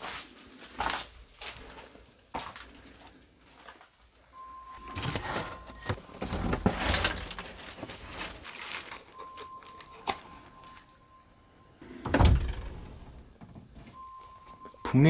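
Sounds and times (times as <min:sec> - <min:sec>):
footsteps through debris: 0:00.0 - 0:04.0, 0:04.8 - 0:11.0
faint steady high tone: 0:04.2 - 0:07.4, 0:08.9 - 0:13.3, 0:13.9 - 0:15.0.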